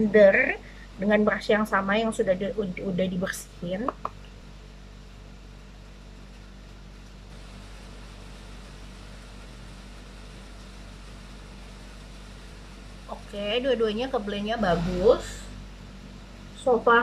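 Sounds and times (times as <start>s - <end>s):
steady low hum: 0.0s - 17.0s
faint hiss: 4.4s - 17.0s.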